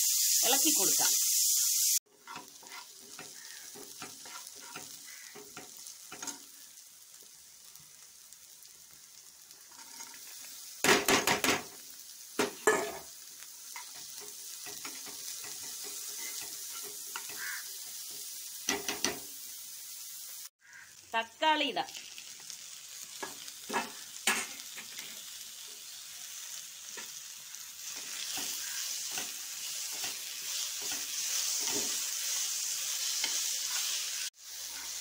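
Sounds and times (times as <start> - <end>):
vegetables sizzling in oil: 0.0 - 35.0
metal spoon scraping a pan: 2.1 - 6.5, 9.6 - 10.3, 13.7 - 19.2, 27.8 - 35.0.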